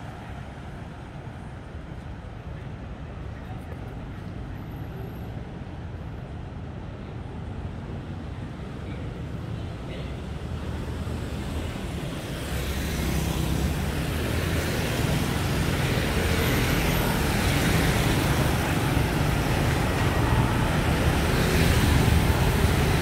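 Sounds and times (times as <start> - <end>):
motorbikes and scooters passing: 11.2 - 23.0
car passing: 12.3 - 23.0.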